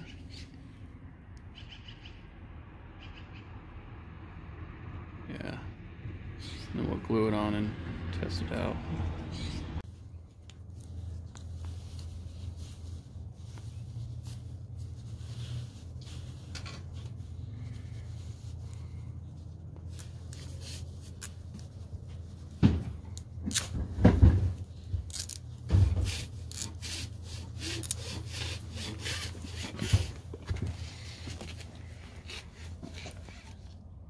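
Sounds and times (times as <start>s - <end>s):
duct tape tearing and crackling: 25.0s - 30.1s
handling bumps: 27.4s - 33.8s.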